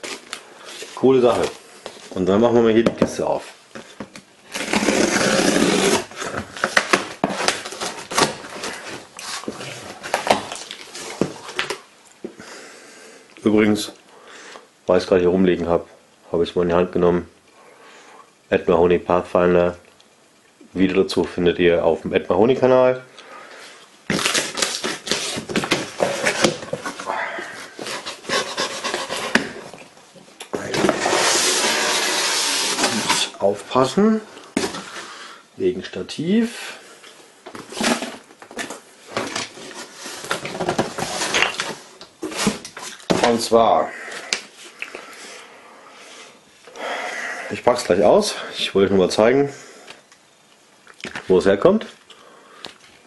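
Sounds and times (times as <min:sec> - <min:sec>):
cardboard crackling and rustling: 0:00.0 - 0:11.8, 0:24.1 - 0:29.9
cardboard scraping rustle: 0:04.5 - 0:11.7, 0:24.1 - 0:29.8, 0:30.6 - 0:33.4, 0:37.5 - 0:43.6
packing tape tearing: 0:04.5 - 0:11.8, 0:24.1 - 0:27.1, 0:30.9 - 0:33.4.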